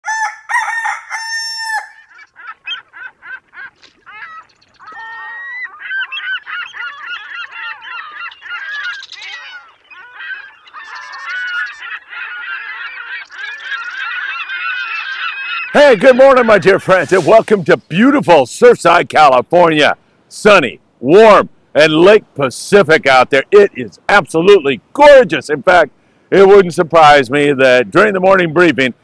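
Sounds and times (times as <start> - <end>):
flock of birds honking: 0.1 - 17.5.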